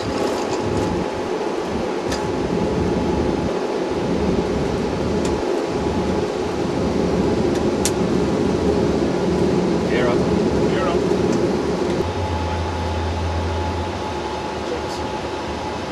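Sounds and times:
engine rumble and airflow: 0.0s - 15.9s.

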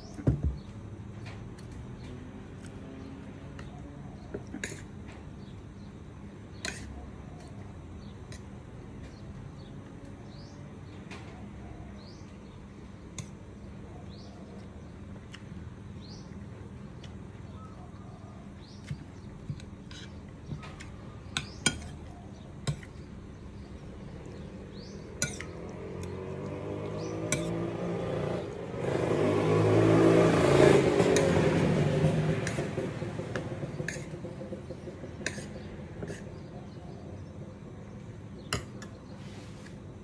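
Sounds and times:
steady low hum: 0.0s - 28.8s.

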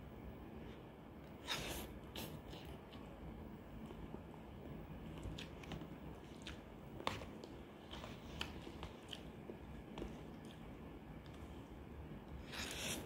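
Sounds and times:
person chewing noodles: 5.1s - 11.4s, 12.4s - 13.0s.

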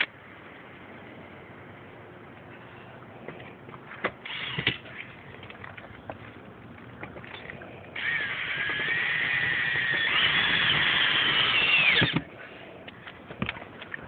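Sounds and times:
cordless drill driving a screw: 4.3s - 4.8s, 8.0s - 12.2s.

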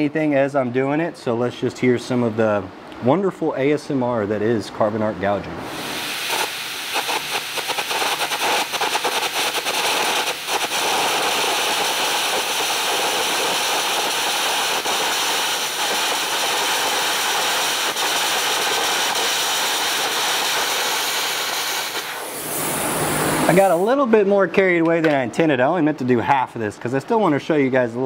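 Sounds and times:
loud air jet hiss: 5.6s - 24.1s
arc crackling and popping: 6.0s - 24.0s.

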